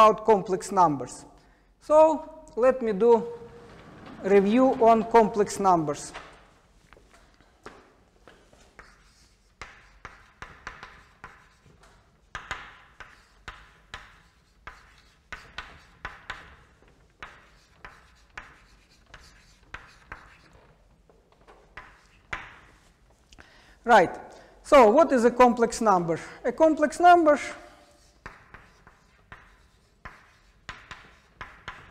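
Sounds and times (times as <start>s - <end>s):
chalk tapping on chalkboard: 7.6s - 20.8s, 21.4s - 23.0s, 27.8s - 31.9s
chalk scratching on board: 8.6s - 20.8s, 21.6s - 23.2s, 27.6s - 31.9s.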